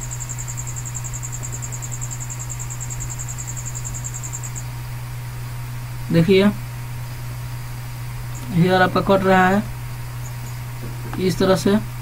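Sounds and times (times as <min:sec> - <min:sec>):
high fast-pulsing chirp: 0:00.0 - 0:04.8, 0:10.1 - 0:10.7
low background hum: 0:00.0 - 0:12.0.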